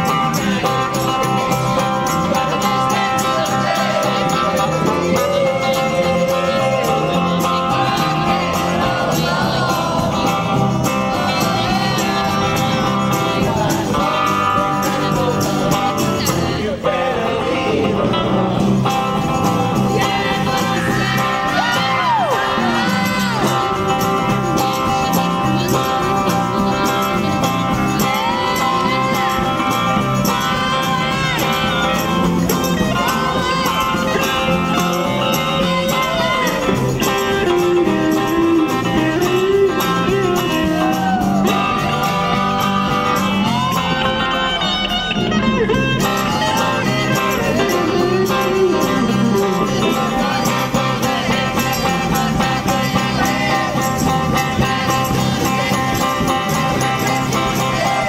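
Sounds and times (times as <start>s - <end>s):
group singing rock and roll: 0.0s - 58.0s
strummed guitars: 0.0s - 58.0s.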